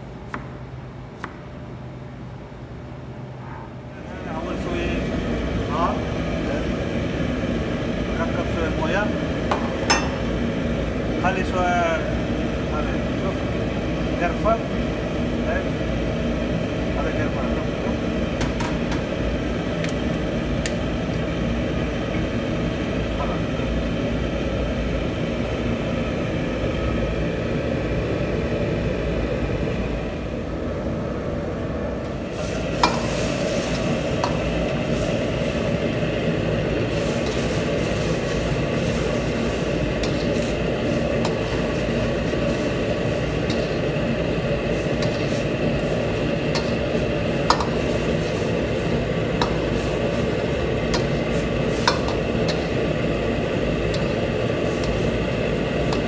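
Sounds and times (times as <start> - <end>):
tomatoes sizzling in a wok: 32.2 - 56.0.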